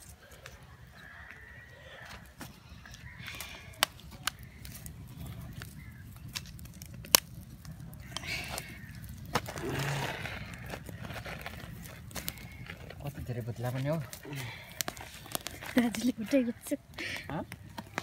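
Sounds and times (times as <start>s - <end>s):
wood fire crackling and popping: 0.0s - 18.0s.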